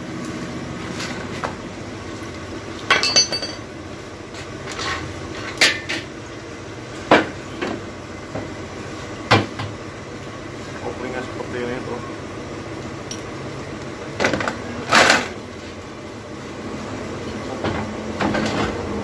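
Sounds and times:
metal clanks and knocks: 2.9 - 3.6.

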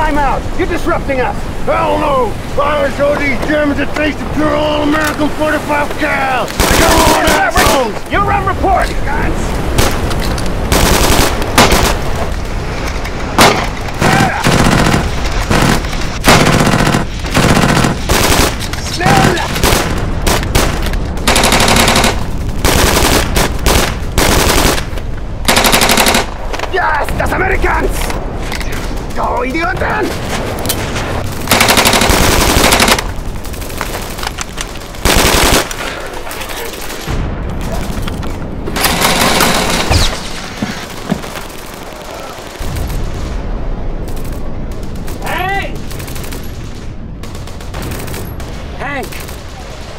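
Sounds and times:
burst of gunfire: 6.4 - 8.0, 9.6 - 26.8, 28.0 - 49.9
automatic gunfire bursts: 10.7 - 12.1, 13.4 - 18.6, 19.2 - 24.9, 25.5 - 26.4, 31.4 - 33.1, 35.0 - 36.0, 38.8 - 40.1
deep boom: 37.1 - 40.2.

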